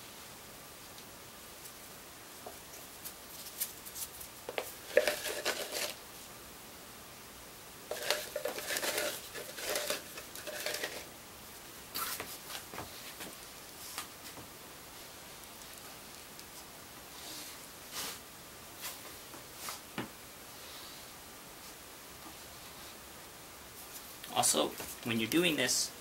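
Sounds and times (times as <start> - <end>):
plastic rustling and scraping: 2.7 - 6.0, 7.9 - 11.1.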